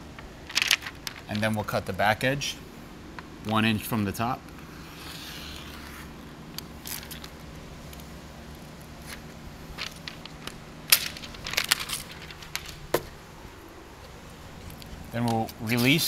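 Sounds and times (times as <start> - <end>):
plastic film crinkling and snapping: 0.2 - 1.7, 6.5 - 13.2.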